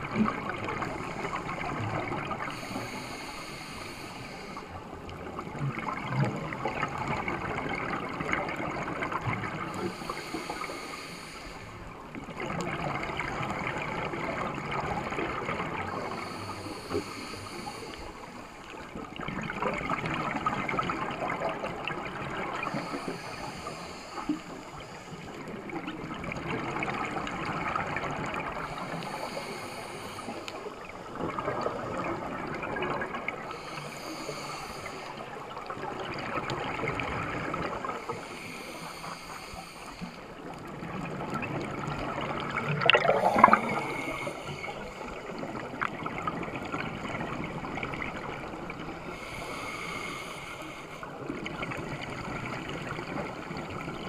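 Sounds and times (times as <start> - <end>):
regulator inhale hiss: 0.6 - 5.3, 9.6 - 12.1, 15.9 - 18.9, 22.3 - 26.4, 28.0 - 31.7, 33.4 - 35.8, 37.6 - 40.8, 42.8 - 45.8, 48.8 - 52.2
gurgle of exhaled bubbles: 5.2 - 10.0, 12.2 - 16.8, 19.0 - 23.0, 40.5 - 49.0.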